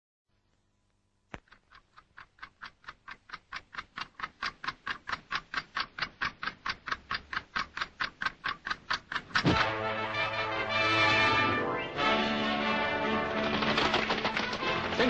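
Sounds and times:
clock ticking fast: 1.4 - 11.2.

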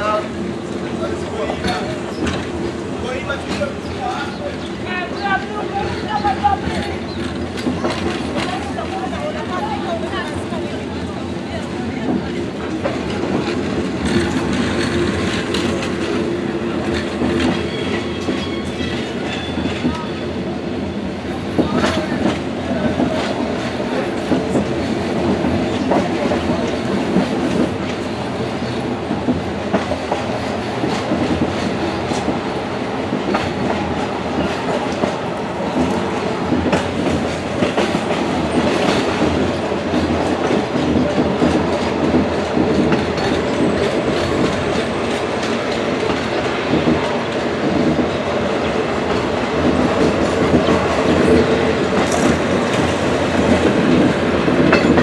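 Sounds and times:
train rumble: 0.0 - 55.0
wheels clattering over rail joints: 21.6 - 55.0.

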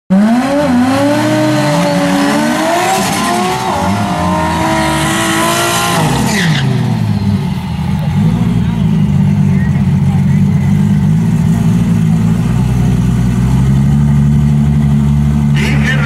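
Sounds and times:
engines revving high: 0.1 - 16.0
tires squealing on pavement: 0.8 - 9.3.

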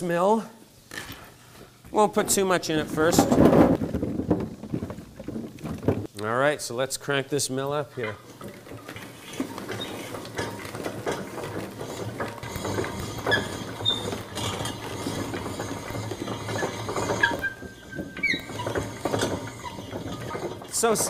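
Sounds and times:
apple mill ratcheting and crunching: 7.6 - 21.0
short squeaks: 11.8 - 21.0.

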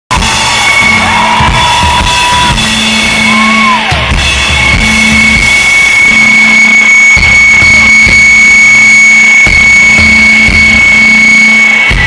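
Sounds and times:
drum kit: 0.1 - 12.0
electric guitars: 0.1 - 12.0
rock band playing live: 0.1 - 12.0
steady high ringing tone: 4.4 - 12.0.

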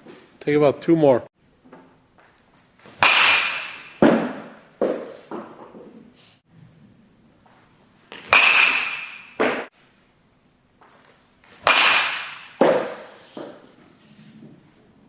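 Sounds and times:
metal bat hitting ball: 3.0 - 5.1, 8.1 - 9.7, 11.6 - 13.1.

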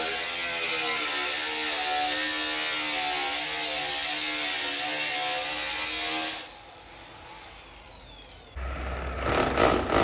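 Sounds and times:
angle grinder cutting sheet metal: 0.0 - 6.5, 8.6 - 10.0.

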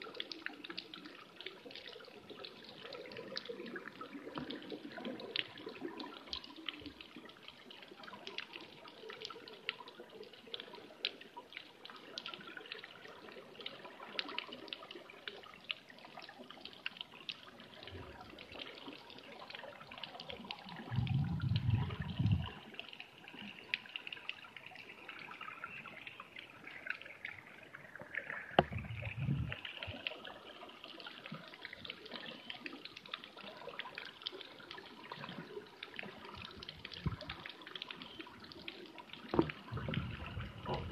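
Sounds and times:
underwater crackle of clicks: 0.1 - 26.0, 26.7 - 40.9
low underwater rumbles: 20.6 - 22.8, 27.8 - 30.1, 36.4 - 37.5, 39.2 - 40.9.

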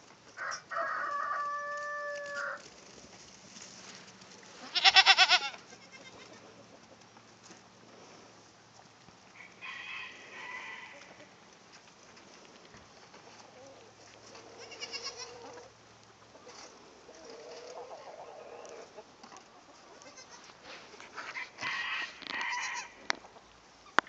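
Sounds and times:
goats bleating: 4.6 - 6.4, 14.6 - 15.6, 19.9 - 20.5.

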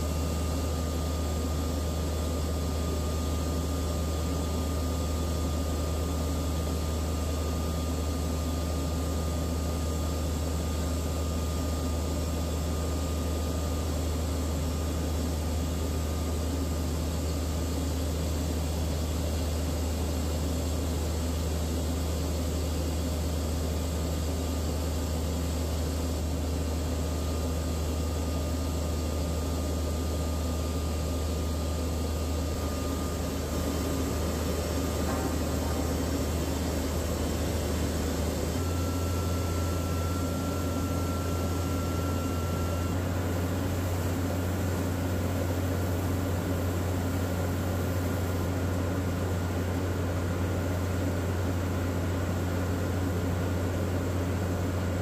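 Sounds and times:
thin steady whine: 0.0 - 55.0
drilling rig engine drone: 31.8 - 41.6.

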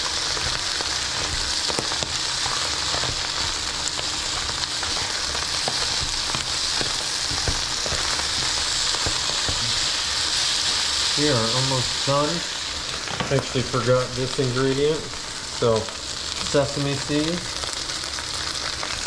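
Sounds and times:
spatula clicking and scraping: 0.0 - 11.2
rice sizzling in a skillet: 0.0 - 19.0.

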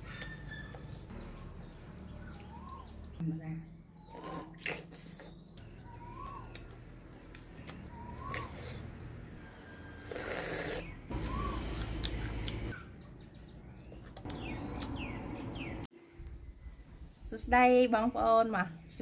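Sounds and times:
bird chirps: 0.0 - 4.3, 5.3 - 8.8, 9.4 - 15.9.

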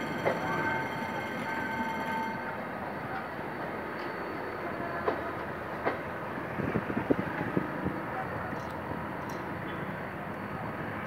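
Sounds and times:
wheels clacking over rail joints: 0.0 - 4.2, 4.8 - 6.2
train wheels rumbling on rails: 0.0 - 11.0.

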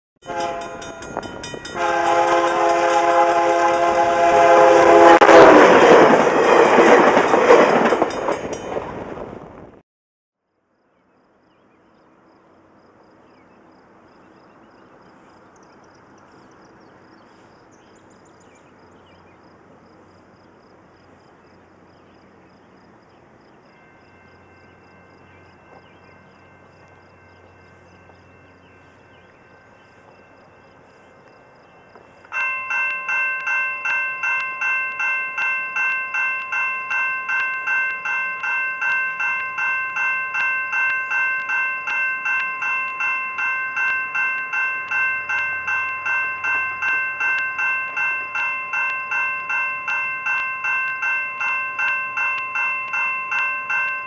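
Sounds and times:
train horn chord: 0.2 - 5.8
train rushing past: 0.2 - 9.8
faint outdoor ambience: 10.4 - 54.0
faint steady tones: 10.7 - 54.0.

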